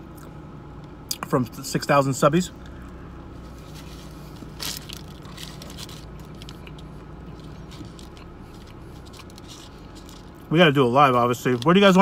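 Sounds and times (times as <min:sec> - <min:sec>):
low hum inside car: 0:00.0 - 0:12.0
crinkling rustle: 0:03.5 - 0:10.5.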